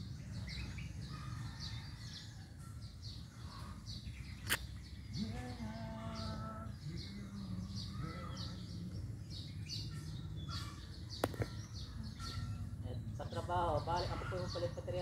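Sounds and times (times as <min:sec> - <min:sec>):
birds chirping: 0:00.0 - 0:15.0
sharp click: 0:04.4 - 0:04.7.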